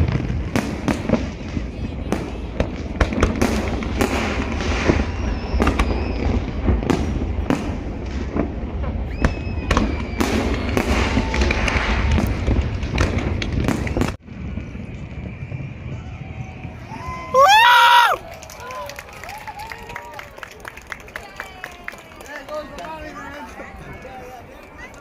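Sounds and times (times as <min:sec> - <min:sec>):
fireworks bangs and crackling: 0:00.0 - 0:17.6
whistling rising shells: 0:04.8 - 0:06.5, 0:09.0 - 0:11.3, 0:13.8 - 0:17.3.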